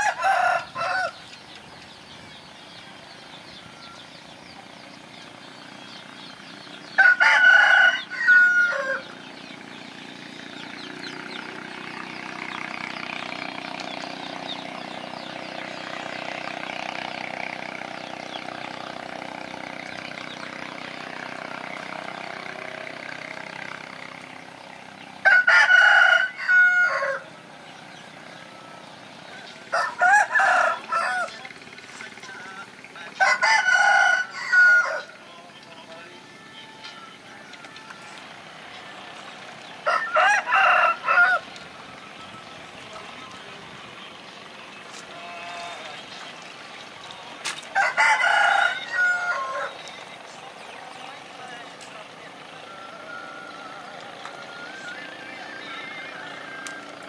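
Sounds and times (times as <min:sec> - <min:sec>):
rooster crowing: 0:00.0 - 0:01.2, 0:06.9 - 0:09.1, 0:25.2 - 0:27.3, 0:29.7 - 0:31.4, 0:33.2 - 0:35.2, 0:39.8 - 0:41.5, 0:47.7 - 0:49.8
faint drone: 0:00.0 - 0:57.0.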